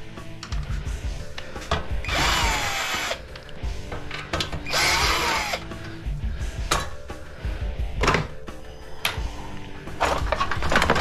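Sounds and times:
cordless drill running: 0:02.0 - 0:03.2, 0:04.7 - 0:05.6.

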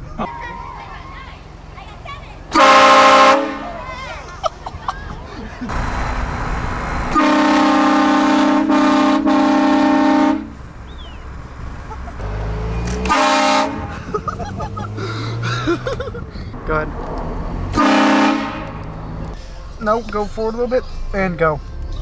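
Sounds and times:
air horn blasting chord: 0:02.5 - 0:03.6, 0:07.1 - 0:10.5, 0:13.0 - 0:13.9, 0:17.7 - 0:18.8.

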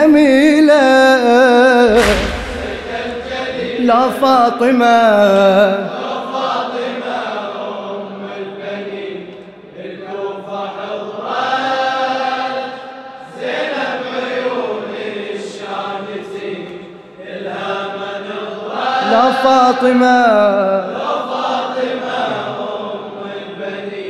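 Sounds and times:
men chanting together: 0:05.6 - 0:24.0.

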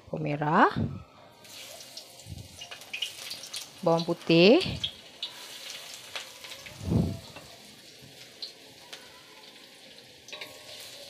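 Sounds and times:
shallots and garlic frying in oil: 0:01.4 - 0:11.0.

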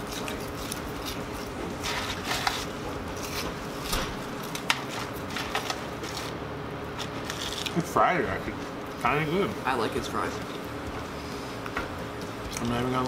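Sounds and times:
wet chewing: 0:00.0 - 0:06.3
paper and food handling clicks: 0:00.0 - 0:06.4, 0:07.0 - 0:07.9
room hum: 0:00.0 - 0:13.0.

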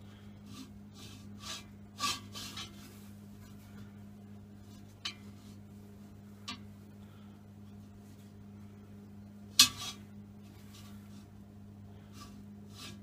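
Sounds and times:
steady low hum: 0:00.0 - 0:13.0
metal scraping on metal: 0:00.5 - 0:03.1, 0:09.6 - 0:11.1, 0:12.0 - 0:13.0.

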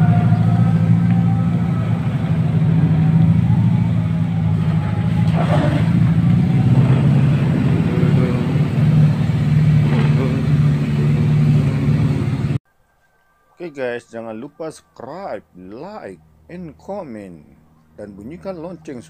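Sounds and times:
vehicle engine running: 0:00.0 - 0:12.6.

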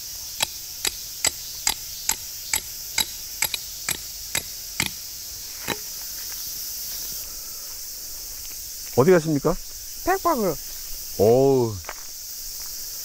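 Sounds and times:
tent pegs being hammered: 0:00.4 - 0:05.0.

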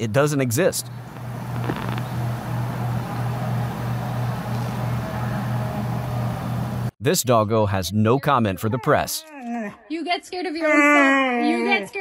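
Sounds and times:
electric fan humming: 0:00.9 - 0:06.9.

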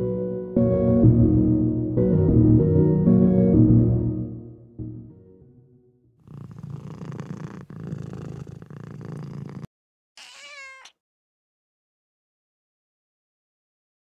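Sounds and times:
cat purring: 0:06.2 - 0:09.7
cat call with wavering pitch: 0:10.2 - 0:10.9.

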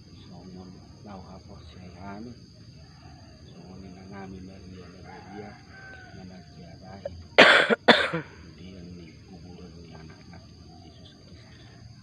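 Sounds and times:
person coughing: 0:07.4 - 0:08.3.

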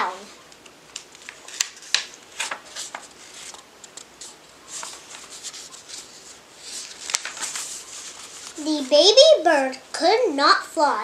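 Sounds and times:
book pages rustling: 0:00.5 - 0:09.2.

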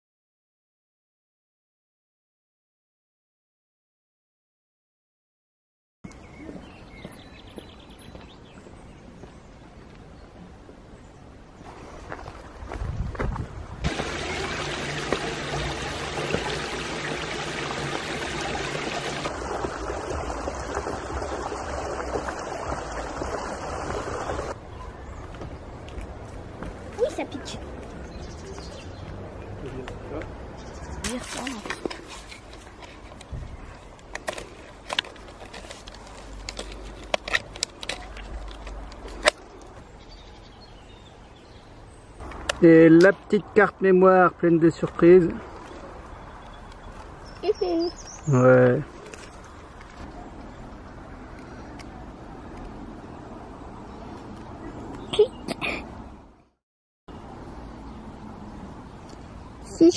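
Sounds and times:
stream running over stones: 0:13.8 - 0:24.6, 0:31.0 - 0:32.8.

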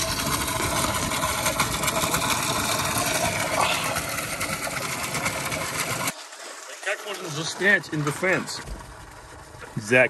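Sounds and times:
engine running: 0:00.0 - 0:10.0
water gushing from a hose: 0:00.0 - 0:10.0.

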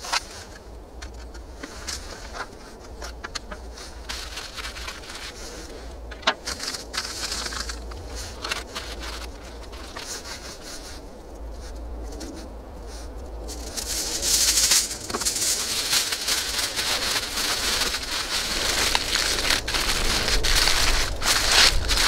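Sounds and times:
aluminium foil crinkling: 0:00.0 - 0:12.4, 0:13.0 - 0:22.0.

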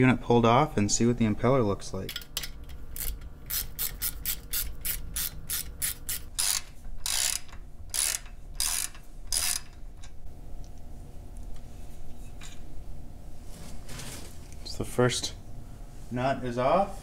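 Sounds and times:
ratchet wrench clicking: 0:02.1 - 0:09.8.

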